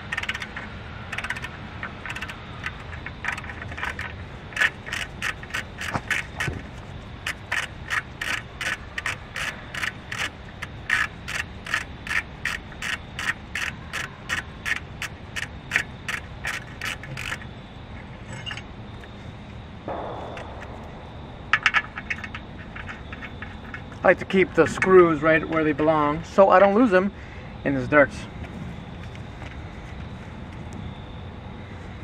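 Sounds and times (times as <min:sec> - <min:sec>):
ratchet wrench clicking: 0:00.0 - 0:06.6, 0:07.2 - 0:17.4.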